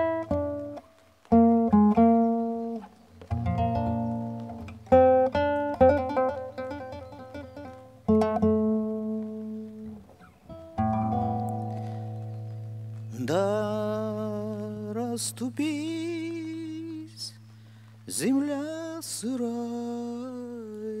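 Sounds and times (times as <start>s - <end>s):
classical guitar chord ringing: 0.0s - 13.3s
man singing with vibrato: 13.1s - 17.4s, 18.1s - 21.0s.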